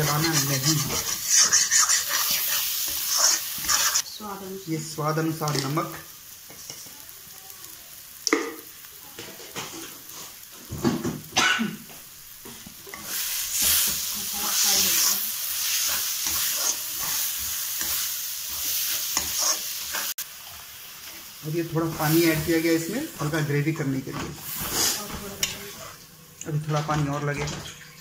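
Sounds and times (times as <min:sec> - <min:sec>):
spatula scraping metal pan: 0:00.0 - 0:04.0, 0:12.9 - 0:20.2, 0:24.4 - 0:26.0
masala sizzling in a pan: 0:00.0 - 0:28.0.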